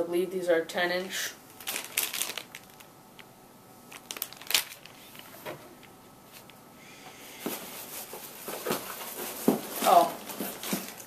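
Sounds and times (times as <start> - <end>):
plastic packaging crinkling: 1.5 - 3.3, 3.9 - 6.5, 7.5 - 11.0.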